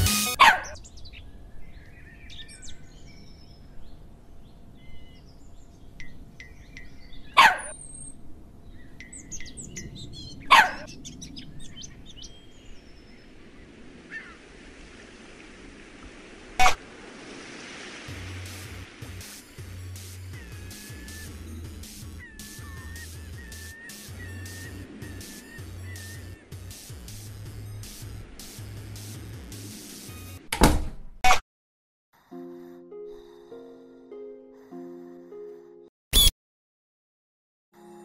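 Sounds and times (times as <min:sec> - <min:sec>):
birds chirping and calling: 0:00.4 - 0:13.4, 0:20.2 - 0:26.6.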